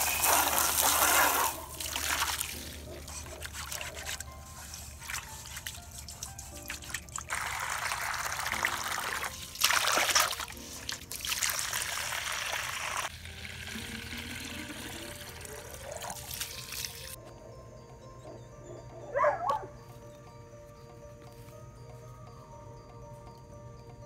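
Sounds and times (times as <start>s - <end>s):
water filling plastic bottle: 0.0s - 4.3s, 4.9s - 17.2s
water splashing into metal bowl: 6.7s - 17.2s.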